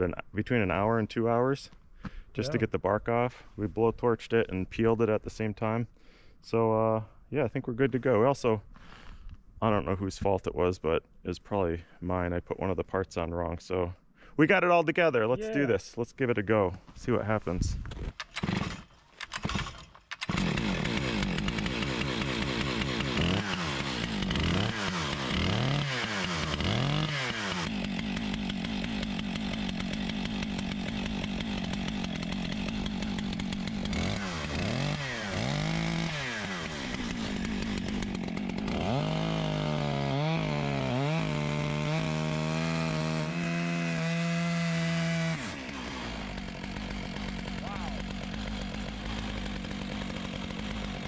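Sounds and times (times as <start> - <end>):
chainsaw revving: 18.0 - 51.0.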